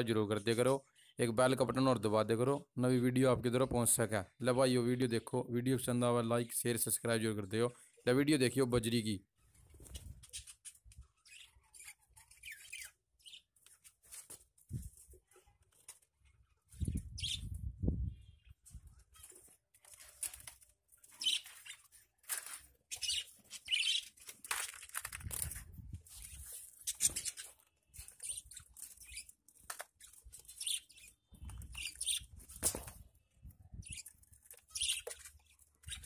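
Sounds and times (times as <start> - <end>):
budgerigars chirping: 17.1 - 17.5, 21.2 - 21.8, 22.9 - 24.2, 30.4 - 32.4, 34.7 - 36.0.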